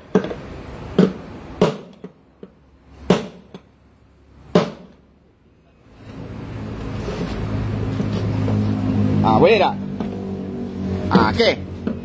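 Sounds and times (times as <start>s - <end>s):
hammer striking steel punch: 4.5s - 5.0s.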